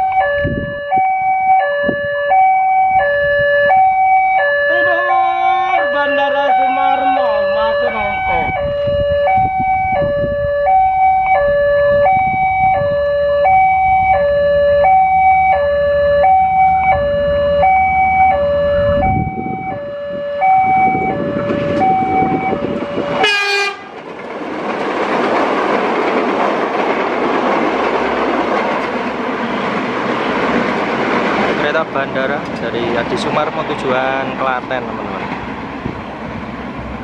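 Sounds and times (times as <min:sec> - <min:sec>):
level-crossing siren two-tone warning: 0:00.0 - 0:23.9
train passing rushing noise: 0:01.7 - 0:37.0
brief rising tone: 0:08.5 - 0:23.2.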